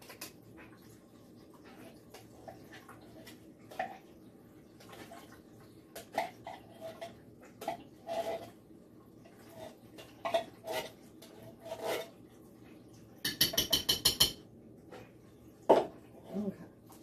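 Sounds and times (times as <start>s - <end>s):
kitchen containers and utensils clinking: 4.8s - 8.6s, 9.3s - 12.2s, 13.2s - 17.0s.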